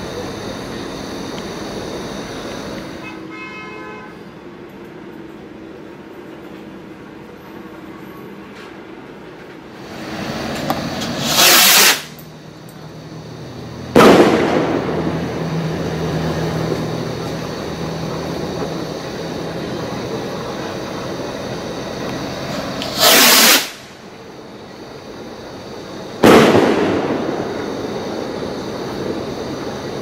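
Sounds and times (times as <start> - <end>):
firework rocket whooshing: 9.7 - 12.3, 13.2 - 24.2, 25.0 - 30.0
firework bang: 9.8 - 12.2, 13.9 - 19.6, 22.5 - 24.0, 26.2 - 29.8.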